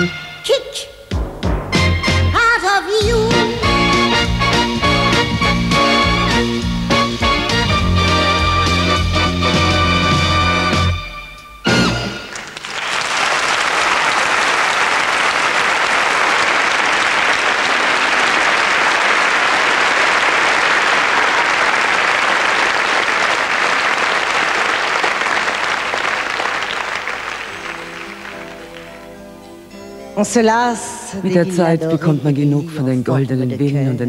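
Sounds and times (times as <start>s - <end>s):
audience applauding: 12.1s - 29.2s.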